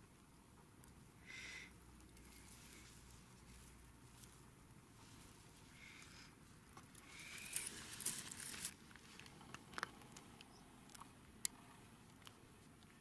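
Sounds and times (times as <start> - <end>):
dry grass and leaves rustling: 2.1 - 9.8.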